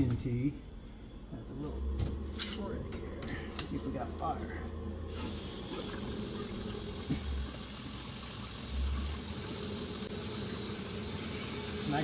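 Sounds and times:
gas burner rumble and hiss: 0.0 - 12.0.

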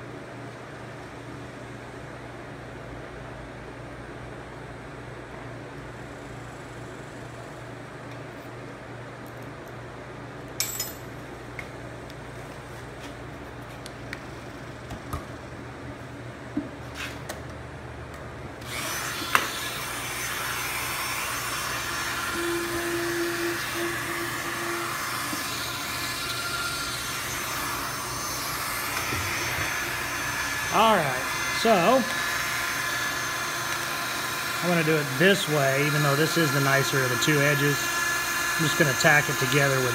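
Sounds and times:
rotary tool running at high speed: 18.6 - 39.9.

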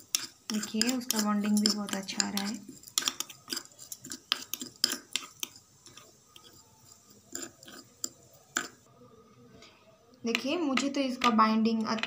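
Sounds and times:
spoon scraping ceramic bowl: 0.0 - 8.9.

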